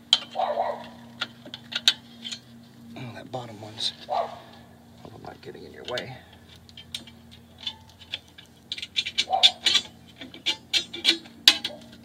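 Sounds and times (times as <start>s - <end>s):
screwdriver scraping metal: 6.8s - 12.0s.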